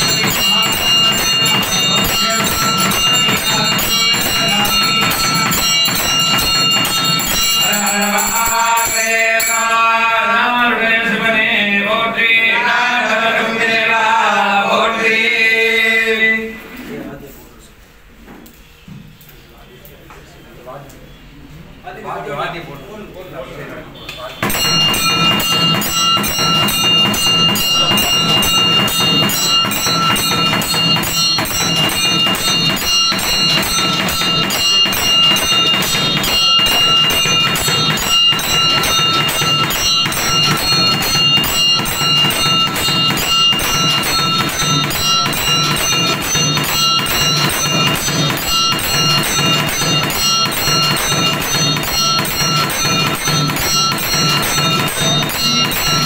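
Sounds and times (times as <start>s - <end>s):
temple bells ringing rapidly: 0.0s - 10.6s, 24.3s - 56.0s.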